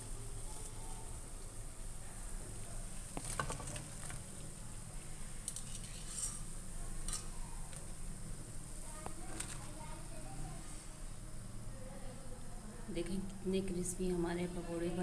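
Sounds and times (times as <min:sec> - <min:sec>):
food sizzling in hot oil: 0:02.9 - 0:08.9
wire skimmer clinking on pan: 0:05.4 - 0:07.4.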